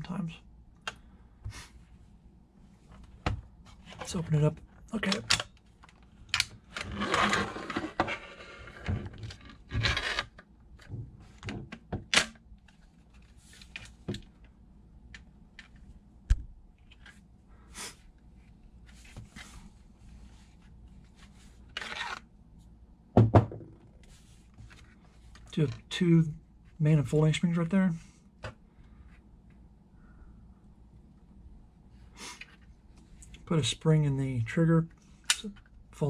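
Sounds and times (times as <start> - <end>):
plastic scraping on plastic: 6.7 - 10.4.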